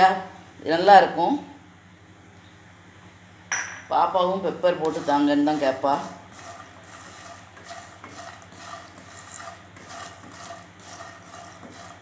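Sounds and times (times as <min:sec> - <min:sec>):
steady low hum: 0:00.0 - 0:12.0
wooden spatula scraping a pan: 0:04.8 - 0:12.0.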